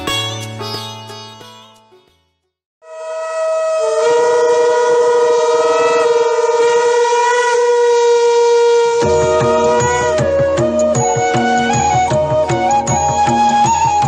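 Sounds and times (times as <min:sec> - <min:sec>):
conch shells blown in long tones: 0:02.8 - 0:14.0.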